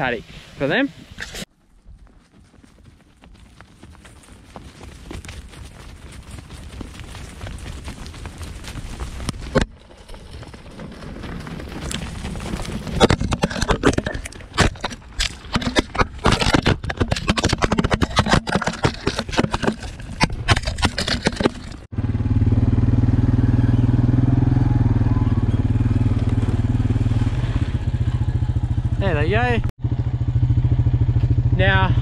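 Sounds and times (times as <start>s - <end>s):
sheep hooves clattering on dirt: 1.4s - 21.9s, 25.6s - 28.3s.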